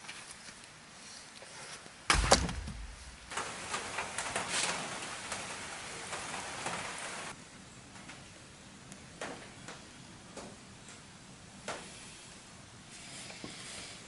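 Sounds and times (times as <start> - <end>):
rustling and crackling: 0.0 - 7.4
firewood struck with thud and crack: 2.1 - 4.5.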